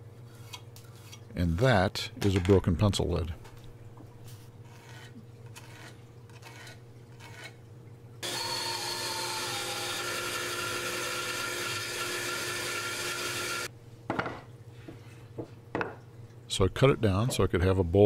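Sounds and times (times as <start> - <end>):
pencil scratching on wood: 4.6 - 7.5
bandsaw whining through wood: 8.2 - 13.7.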